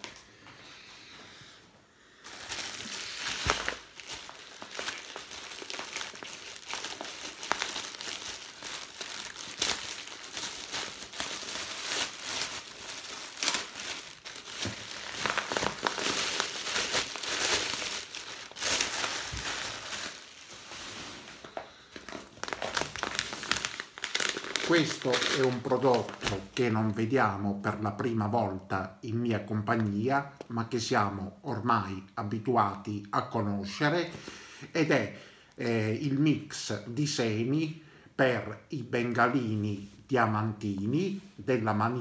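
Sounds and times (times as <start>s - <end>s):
plastic bag crinkling: 2.2s - 26.9s.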